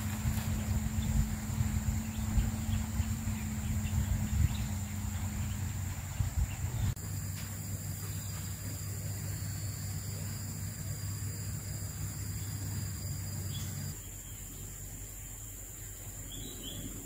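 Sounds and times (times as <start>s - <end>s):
wind rumble on microphone: 0.0s - 7.0s
high insect whine: 0.0s - 17.0s
faint bird chirps: 7.8s - 17.0s.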